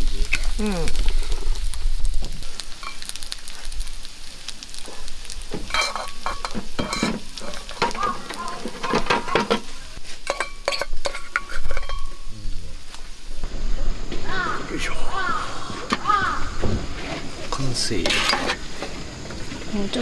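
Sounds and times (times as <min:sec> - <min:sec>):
steel bowl clinking against pot: 0:05.7 - 0:08.0, 0:10.3 - 0:12.2.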